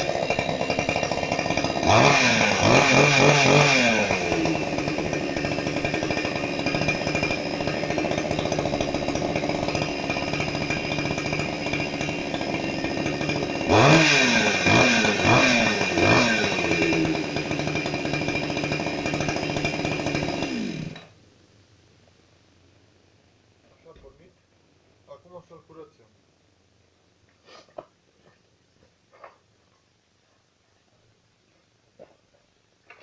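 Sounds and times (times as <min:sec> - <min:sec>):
chainsaw idling and revving: 0:00.0 - 0:21.2.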